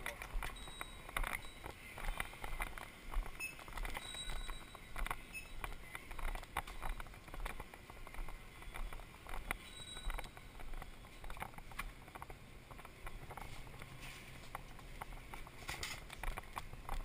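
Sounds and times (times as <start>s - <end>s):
footsteps: 0.0s - 17.0s.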